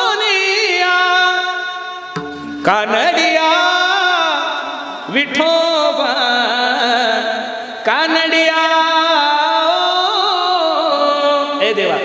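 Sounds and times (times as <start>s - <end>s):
man singing devotional verse: 0.0s - 12.0s
instrumental accompaniment: 2.0s - 3.9s.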